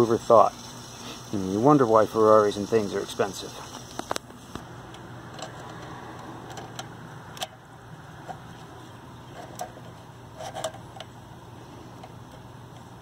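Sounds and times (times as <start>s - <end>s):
metallic clicks of clutch cable: 3.8s - 8.7s.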